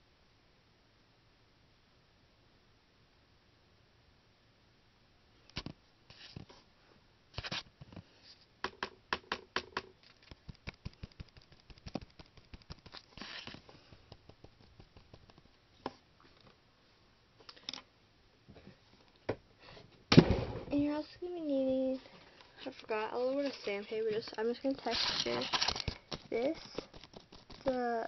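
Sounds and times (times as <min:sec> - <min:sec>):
paintbrush tapping on clay: 0:08.6 - 0:13.2, 0:13.8 - 0:15.5.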